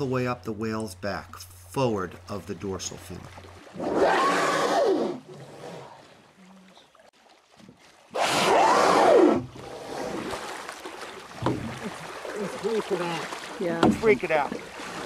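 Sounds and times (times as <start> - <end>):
whale blowing: 3.6 - 6.8, 8.1 - 10.6.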